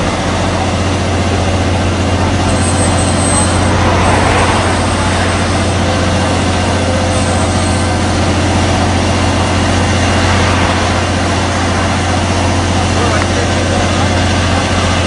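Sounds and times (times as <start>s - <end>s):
truck engine running: 0.0s - 15.0s.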